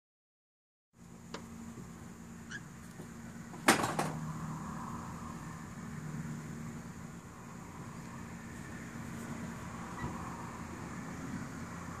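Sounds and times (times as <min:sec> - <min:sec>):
sharp knocks: 0:03.5 - 0:04.2.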